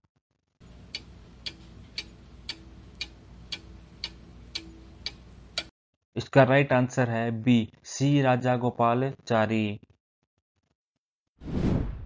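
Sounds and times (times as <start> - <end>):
clock ticking: 0.6 - 5.7.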